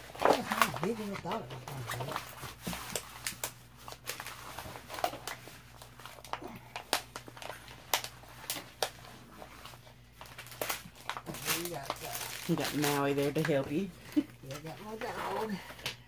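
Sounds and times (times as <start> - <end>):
stiff canvas rustling and crackling: 0.0 - 16.0.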